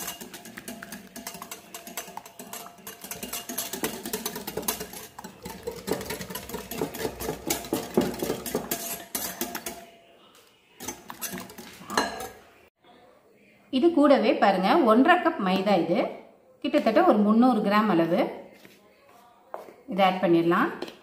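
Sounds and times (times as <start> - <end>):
whisk clattering in glass bowl: 0.0 - 9.9, 10.8 - 12.4.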